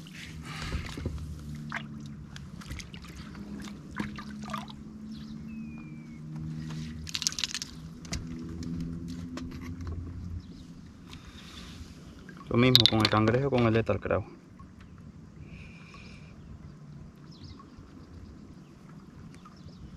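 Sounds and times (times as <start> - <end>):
water splash: 0.0 - 4.9
low hum: 0.0 - 13.4
water trickling and sloshing: 0.0 - 19.9.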